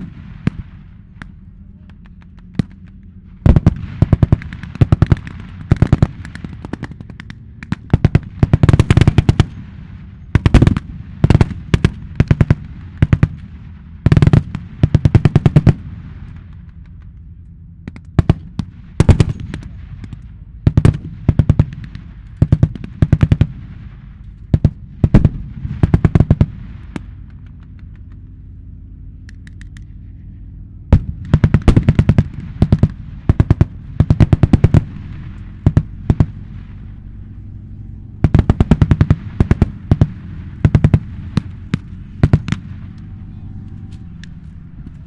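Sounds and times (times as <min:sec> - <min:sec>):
vehicle engines rumbling: 0:00.0 - 0:45.0
machine-gun fire: 0:02.1 - 0:16.6, 0:17.9 - 0:28.0, 0:30.9 - 0:37.0, 0:38.2 - 0:43.0.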